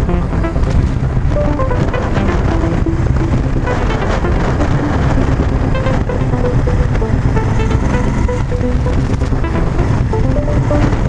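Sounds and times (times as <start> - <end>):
background music melody: 0.0 - 11.0
wind noise: 0.0 - 11.0
motorcycle engine: 4.8 - 10.7.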